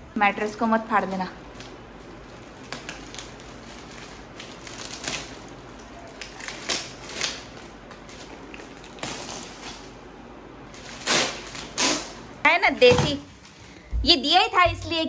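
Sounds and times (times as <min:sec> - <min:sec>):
plastic wrapping crinkling: 0:00.9 - 0:13.8.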